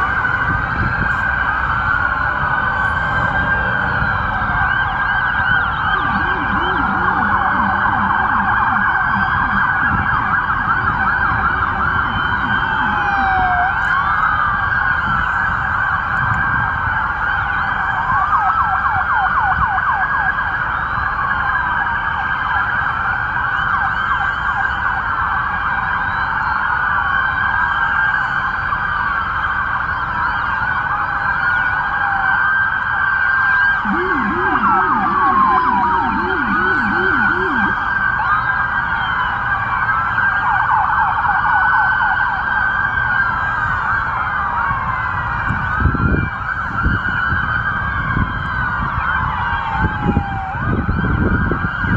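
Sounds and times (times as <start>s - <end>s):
low-pitched siren fast yelp: 0.0s - 51.9s
police sirens wailing: 0.0s - 51.9s.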